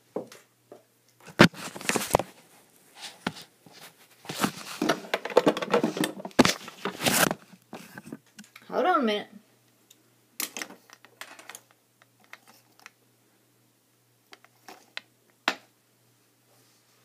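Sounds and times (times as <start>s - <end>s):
rustling and knocking: 3.1s - 8.4s.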